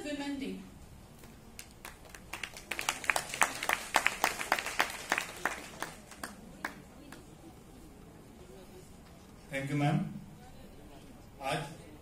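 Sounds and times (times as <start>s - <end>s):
audience applause: 1.6s - 6.8s.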